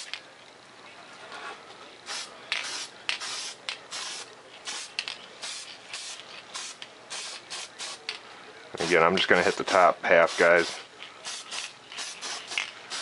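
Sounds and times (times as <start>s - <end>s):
spray paint can hissing: 2.1s - 8.1s, 8.8s - 13.0s.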